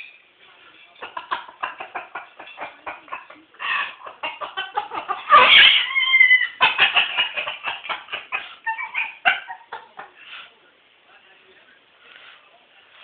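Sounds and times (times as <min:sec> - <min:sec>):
cockatoo laughing: 0:01.0 - 0:10.2
cockatoo squawk: 0:05.1 - 0:07.4.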